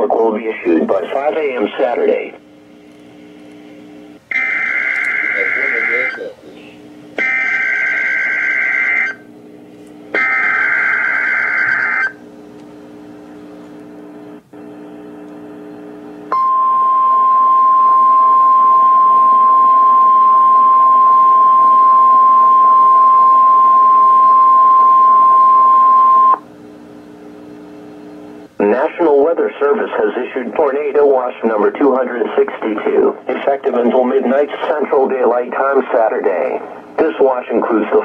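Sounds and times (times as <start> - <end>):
buzzing digital data bursts: 4.3 - 6.3
steady warning alarm tone: 4.3 - 6.5, 7.2 - 9.3, 10.1 - 12.2, 16.3 - 26.4.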